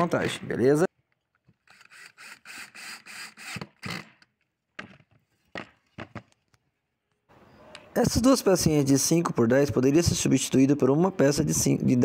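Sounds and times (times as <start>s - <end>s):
drill boring into wood: 1.7s - 4.2s.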